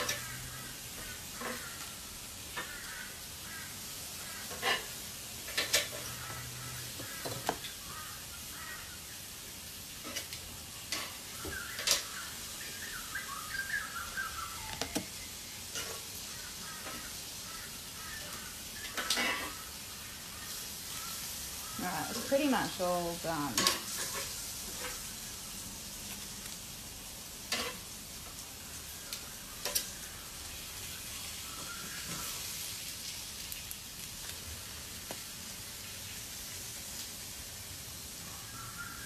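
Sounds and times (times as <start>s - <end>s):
vegetables sizzling on a grill: 0.0s - 39.0s
metal tongs clicking on grate: 23.6s - 25.0s.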